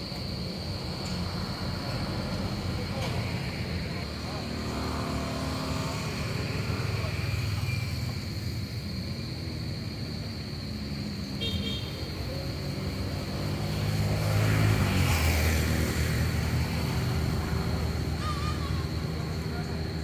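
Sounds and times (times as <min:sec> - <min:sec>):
vehicle engine passing: 0:01.2 - 0:08.5, 0:12.0 - 0:20.0.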